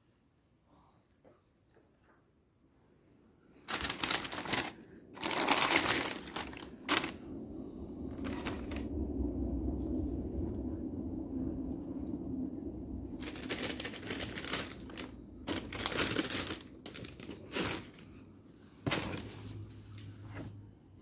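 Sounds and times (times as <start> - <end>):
tissue paper rustling: 3.6 - 7.3, 8.1 - 8.9, 13.2 - 18.2
low rumble: 4.0 - 18.5.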